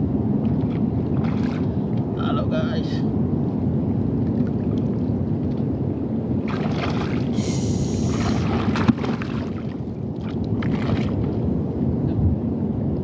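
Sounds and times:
wind rumble on microphone: 0.0 - 13.0
water splashing and sloshing: 0.2 - 2.3, 3.6 - 11.7.

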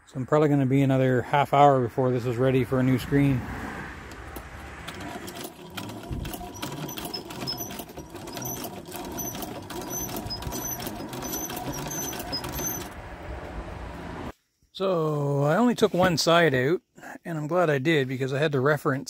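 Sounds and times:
sewing machine needle clattering: 4.1 - 13.0.

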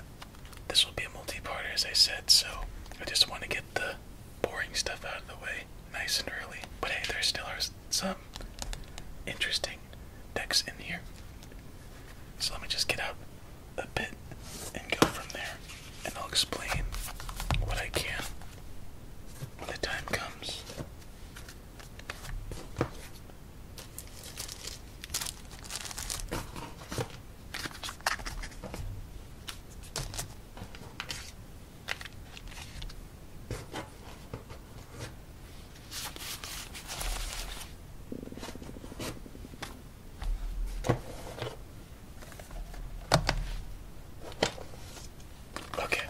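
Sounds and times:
card decks being handled: 14.4 - 18.6, 19.4 - 23.2, 23.8 - 41.6, 42.2 - 46.0.

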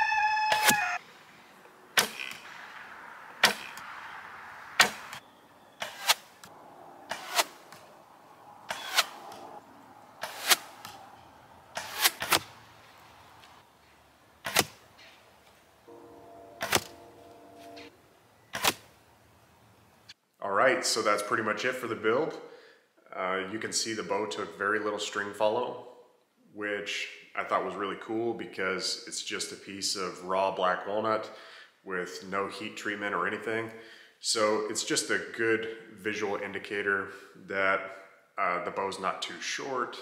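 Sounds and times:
arrow striking straw target: 2.0 - 2.6, 3.4 - 3.9, 4.8 - 5.2, 5.8 - 6.5, 7.1 - 7.9, 8.7 - 9.4, 10.2 - 11.0, 11.7 - 12.5, 14.4 - 14.8.

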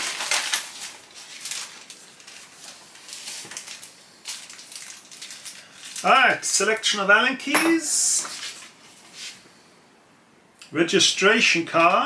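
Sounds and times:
plastic sleeve and paper rustling: 0.0 - 6.4, 8.2 - 9.4.

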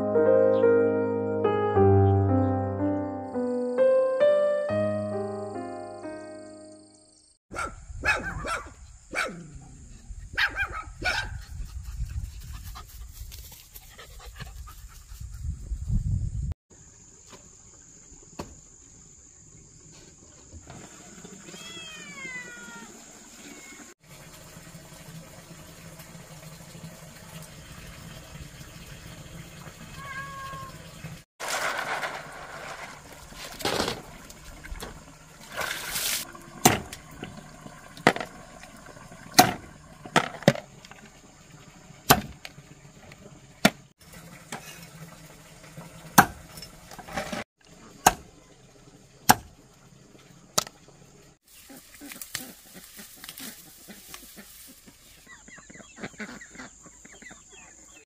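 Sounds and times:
cleaver chopping on wooden board: 42.1 - 42.3, 48.0 - 48.3, 49.3 - 49.5.

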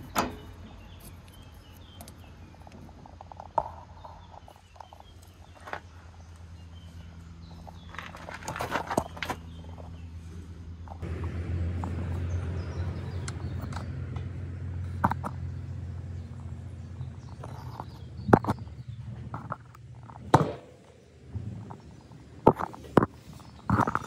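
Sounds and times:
steady low hum: 0.0 - 24.0
rustling and clicks: 7.6 - 9.9.

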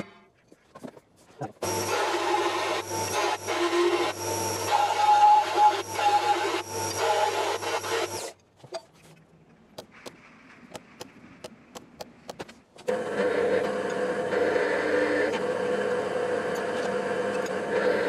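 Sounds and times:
disc sander running: 1.6 - 8.3, 12.9 - 18.0
pillar drill running: 1.6 - 8.3, 12.9 - 18.0.

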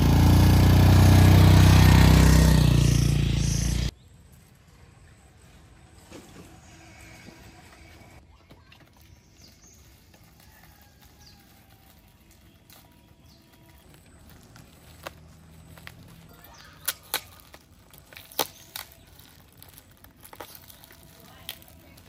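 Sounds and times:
plastic bag crinkling: 9.4 - 22.0.

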